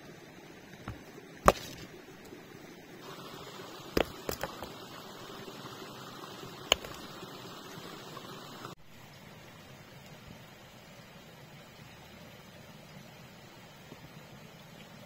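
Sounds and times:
sharp knocks: 0:04.0 - 0:04.7.

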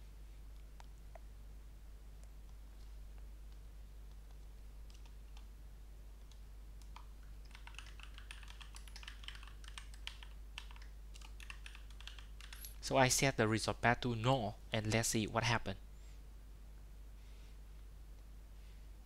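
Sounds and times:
faint keyboard typing: 0:02.2 - 0:05.5, 0:06.2 - 0:12.8.

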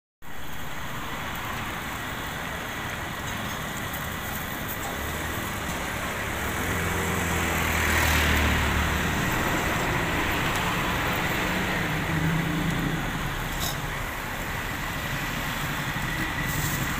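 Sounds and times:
roadside traffic noise: 0:00.2 - 0:16.9
vehicle engine passing by: 0:04.9 - 0:16.9.

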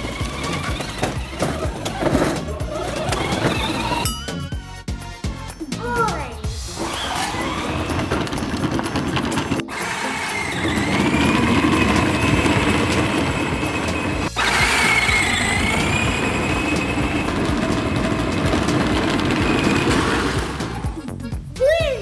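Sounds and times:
wheels on paving stones: 0:00.0 - 0:04.0, 0:06.8 - 0:21.0
electric toy car motor whine: 0:00.0 - 0:04.1, 0:06.7 - 0:20.9
music: 0:00.0 - 0:22.0.

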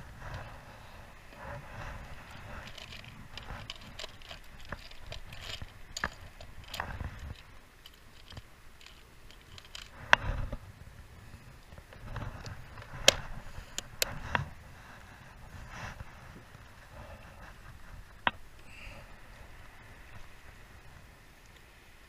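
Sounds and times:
lures rattling in plastic box: 0:02.1 - 0:10.0.

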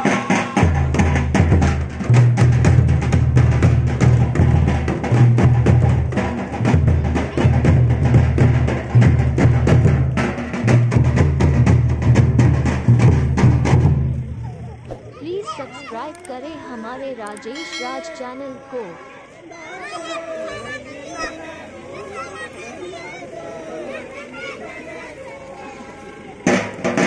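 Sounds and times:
fast dance drumming: 0:00.0 - 0:14.1
deep booming bass: 0:00.6 - 0:14.9.

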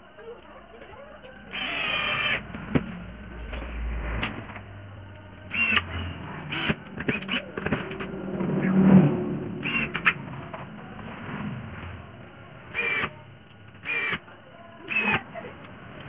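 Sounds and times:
cordless drill whining: 0:01.5 - 0:02.5, 0:05.5 - 0:05.9, 0:06.5 - 0:07.4, 0:09.6 - 0:10.2, 0:12.7 - 0:13.1, 0:13.8 - 0:14.2, 0:14.9 - 0:15.2.

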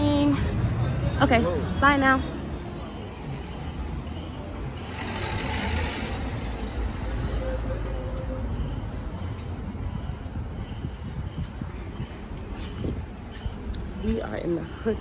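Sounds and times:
low street rumble: 0:00.0 - 0:15.0.

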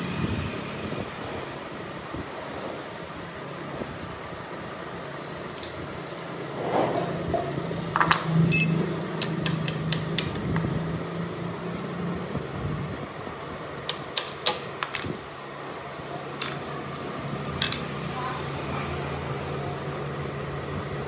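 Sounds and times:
metal tools clicking: 0:08.0 - 0:10.4, 0:13.8 - 0:15.3, 0:16.4 - 0:16.9, 0:17.6 - 0:18.0.

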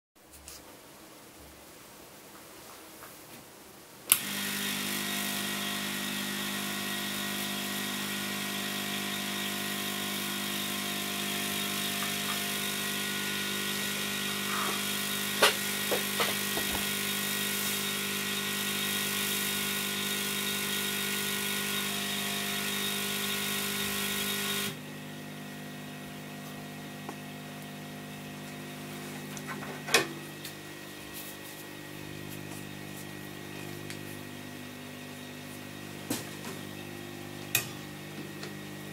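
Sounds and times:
hot-air blower rushing: 0:04.1 - 0:38.9
steady electrical hum: 0:24.8 - 0:38.9.

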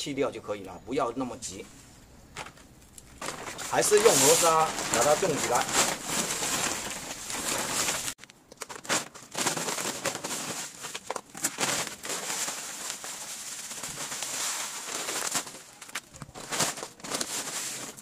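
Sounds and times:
plastic rustling and crinkling: 0:01.5 - 0:18.0
sand pouring into plastic basin: 0:03.4 - 0:08.2.

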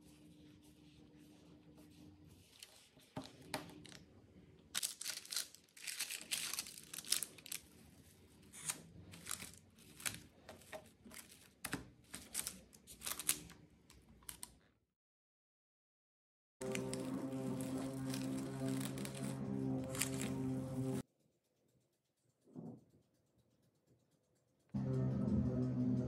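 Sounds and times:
cling film crinkling: 0:04.7 - 0:07.8, 0:08.5 - 0:13.5, 0:16.6 - 0:21.0.

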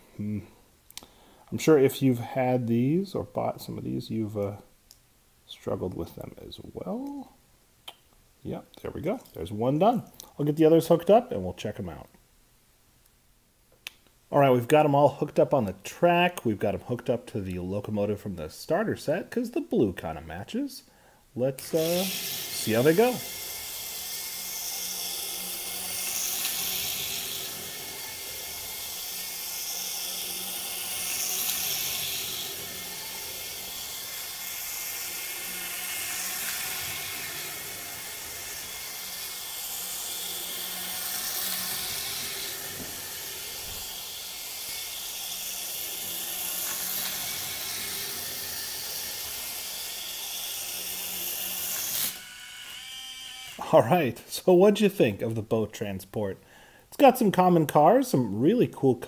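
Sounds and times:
toy train wheels rattling: 0:21.6 - 0:52.3
toy train motor whirring: 0:21.6 - 0:53.8.

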